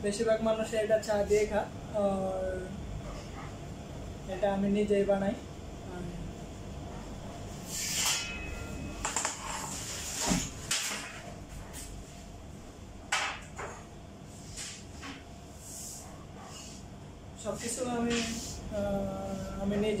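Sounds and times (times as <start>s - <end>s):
metal baking sheets clattering: 7.8s - 11.3s.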